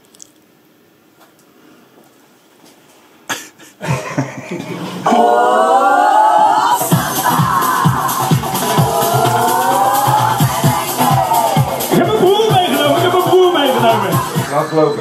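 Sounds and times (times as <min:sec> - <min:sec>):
person singing a long note: 0:05.1 - 0:11.8.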